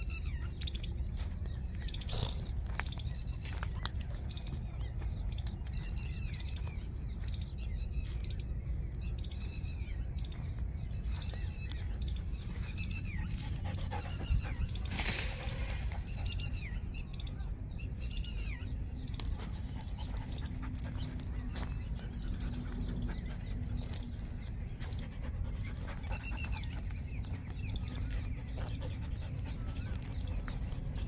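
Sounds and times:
dog panting: 12.2 - 16.7, 19.4 - 31.0.

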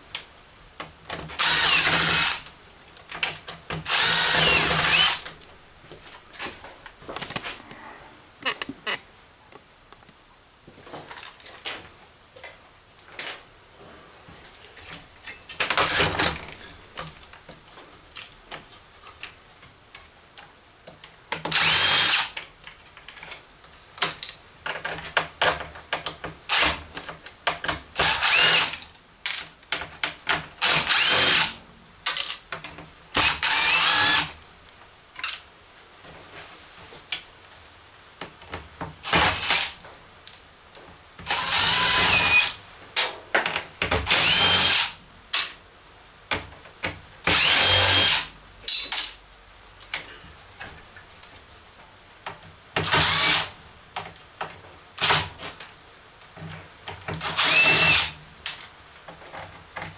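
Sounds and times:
cordless drill backing out screws: 57.2 - 58.1.

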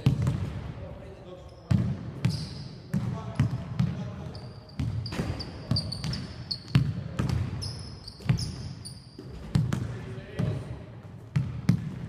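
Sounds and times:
basketballs bouncing on wooden court: 0.0 - 0.8, 1.6 - 12.0
sneaker squeaks: 1.4 - 9.9.

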